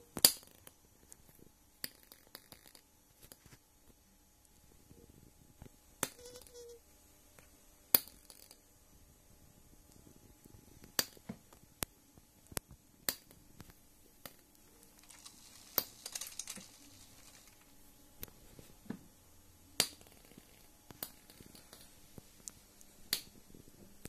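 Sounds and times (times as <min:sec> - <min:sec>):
faint steady hum: 0:00.0 - 0:24.0
brief crackle: 0:14.5 - 0:18.7.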